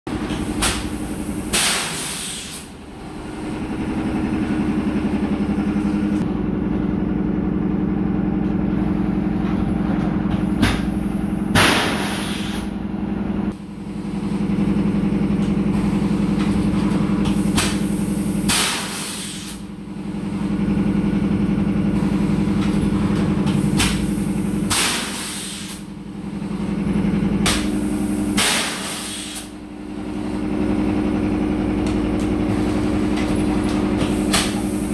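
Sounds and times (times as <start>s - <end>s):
factory machinery humming: 0.1s - 34.9s
short loud hisses: 1.5s - 2.7s, 11.7s - 12.7s.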